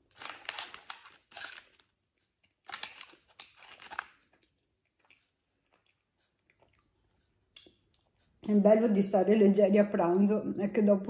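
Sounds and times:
candy wrapper crinkling: 0.0s - 4.5s.

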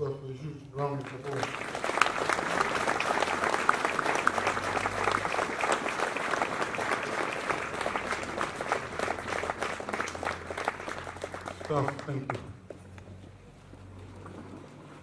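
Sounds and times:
audience applauding: 0.9s - 12.6s.

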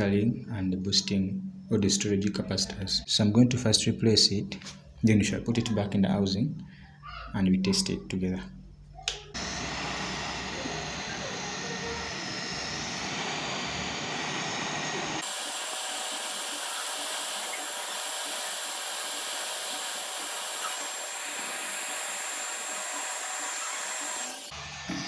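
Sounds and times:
hot-air station blowing air: 9.4s - 25.0s.

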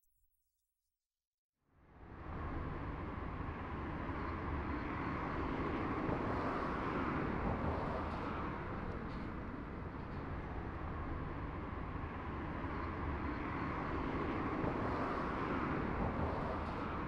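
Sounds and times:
distant vehicles hum: 1.9s - 17.0s.

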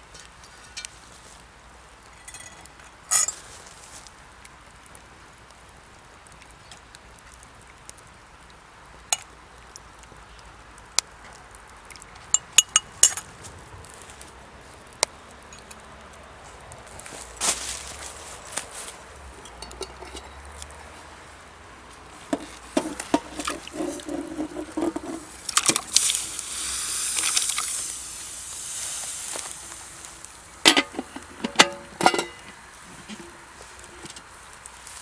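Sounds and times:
sizzling hiss: 0.0s - 35.0s
metal utensils clinking on cookware: 2.2s - 3.4s, 19.4s - 20.4s, 30.7s - 32.6s.

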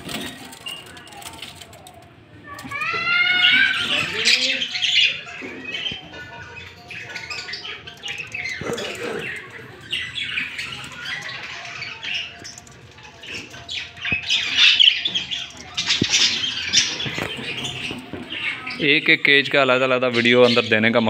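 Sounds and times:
budgerigars chirping: 3.0s - 21.0s.

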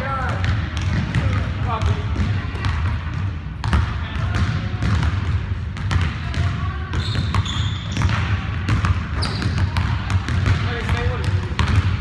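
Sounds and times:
basketball bouncing on wooden floor: 0.2s - 12.0s
shoe squeaks: 7.0s - 8.1s, 9.2s - 9.6s.

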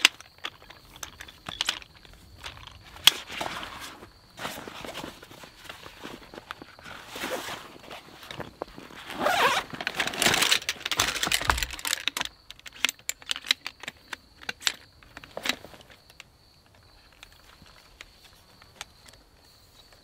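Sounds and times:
nylon fabric rustling and scraping: 0.0s - 11.8s.

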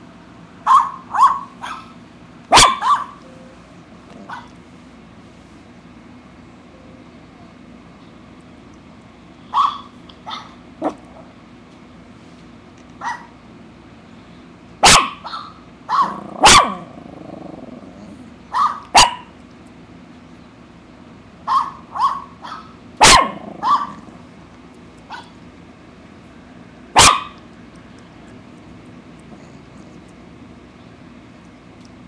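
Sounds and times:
dog barking: 0.7s - 1.9s, 2.5s - 3.2s, 9.5s - 11.0s, 13.0s - 13.3s, 14.8s - 16.9s, 18.5s - 19.3s, 21.5s - 24.0s, 27.0s - 27.4s.

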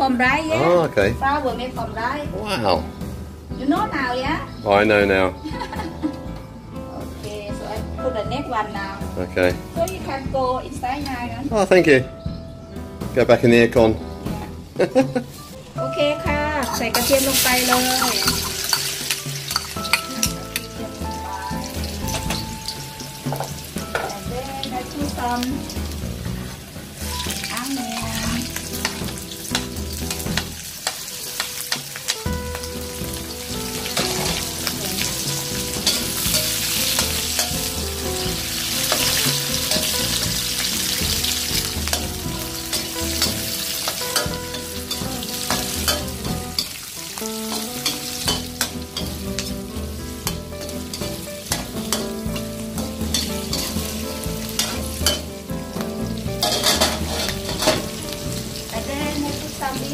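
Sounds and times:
onion and garlic sizzling in oil: 14.1s - 59.9s
metal ladle scraping a wok: 16.6s - 20.7s, 35.3s - 37.7s, 38.5s - 46.8s, 50.2s - 55.3s, 56.4s - 58.0s.

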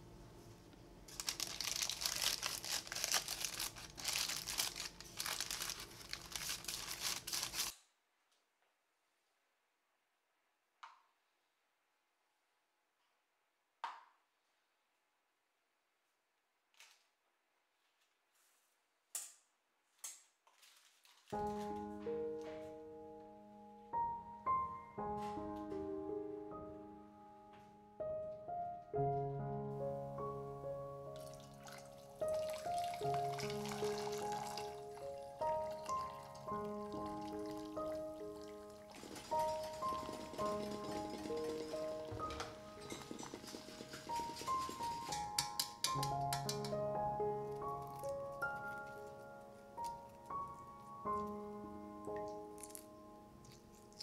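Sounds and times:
parchment paper crinkling: 1.1s - 7.8s, 20.4s - 21.9s, 32.2s - 46.7s
solo piano music: 21.4s - 54.0s.

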